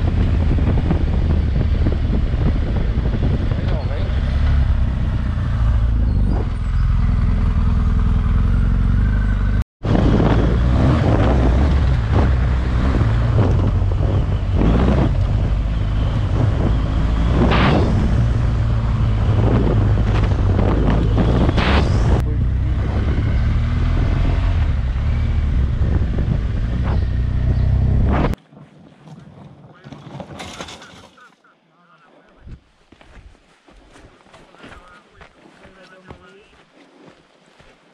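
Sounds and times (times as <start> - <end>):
motorcycle engine running: 0.0 - 28.2
rushing noise: 14.6 - 24.0.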